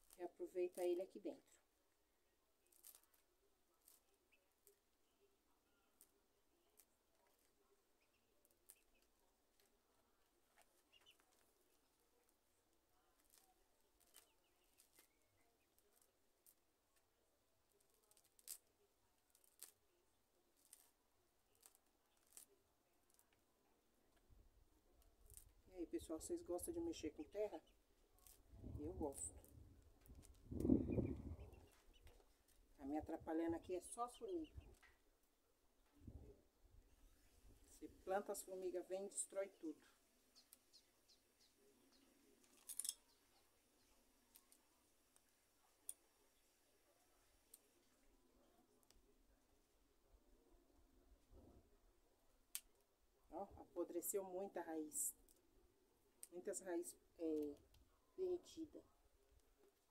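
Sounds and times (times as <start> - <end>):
faint crisp snips: 2.6 - 5.0, 5.9 - 9.8, 13.2 - 19.9, 20.5 - 23.5, 27.6 - 28.5, 41.9 - 46.2
scissors snipping roots: 42.5 - 43.1.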